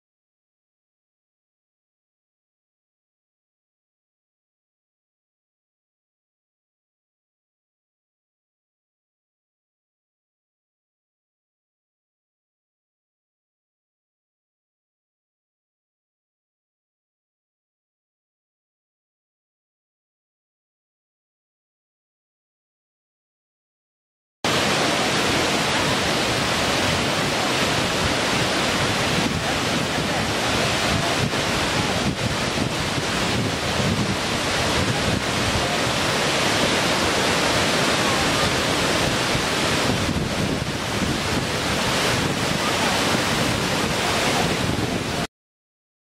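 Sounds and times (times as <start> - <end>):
waterfall rushing: 24.5 - 45.3.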